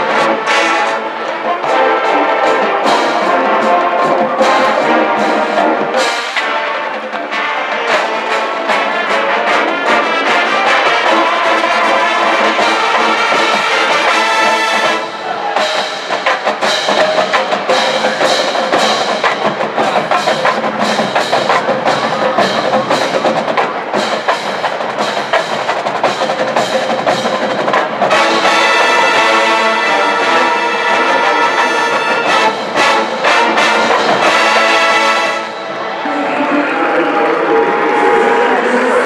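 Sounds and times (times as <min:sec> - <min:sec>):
drumline drum strikes: 0:00.0 - 0:35.8
marching band brass: 0:00.0 - 0:39.0.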